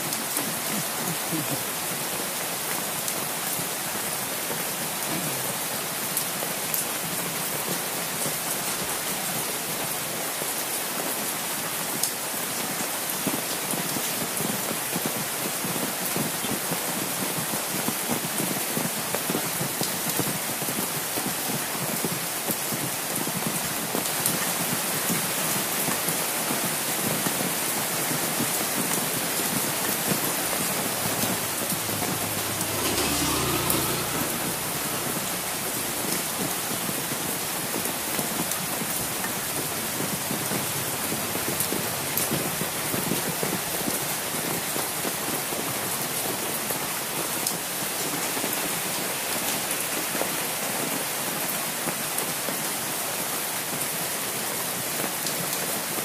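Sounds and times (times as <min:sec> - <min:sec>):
heavy rain on an umbrella: 0:00.0 - 0:56.0
low rumble: 0:30.5 - 0:37.3.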